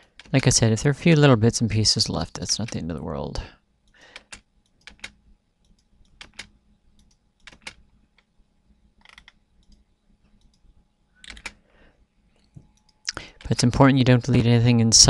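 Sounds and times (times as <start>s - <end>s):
computer mouse clicks: 3.8s - 8.3s, 9.0s - 11.6s
keyboard key presses: 4.2s - 7.8s, 11.2s - 11.6s.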